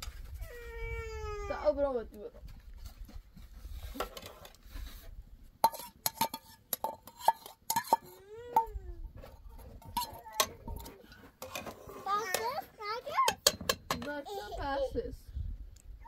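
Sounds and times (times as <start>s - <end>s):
metal ladle clinking on pot: 5.6s - 8.2s, 9.8s - 11.6s.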